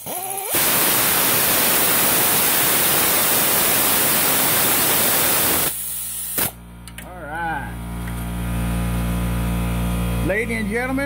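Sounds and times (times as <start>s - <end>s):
gas hissing under pressure: 0.0s - 6.6s.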